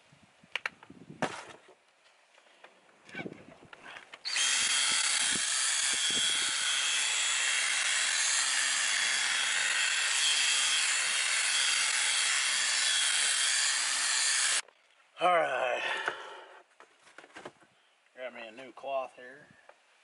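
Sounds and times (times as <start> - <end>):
cordless drill polishing plastic: 4.3 - 14.6.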